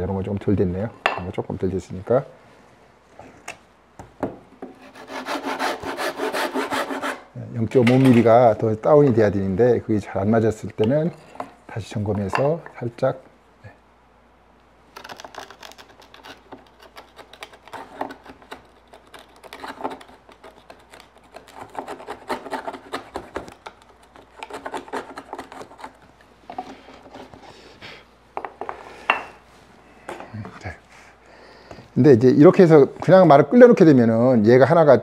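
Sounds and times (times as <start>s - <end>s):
chisel scraping wood: 4.8s - 7.2s, 15.1s - 26.0s.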